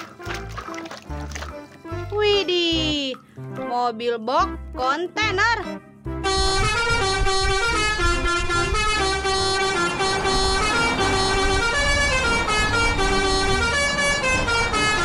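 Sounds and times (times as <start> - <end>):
brassy horn-like tune: 6.1 - 15.0.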